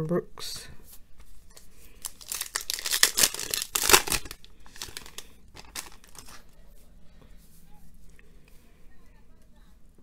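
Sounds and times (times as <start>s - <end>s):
foil wrapper crinkling and tearing: 1.9s - 6.4s.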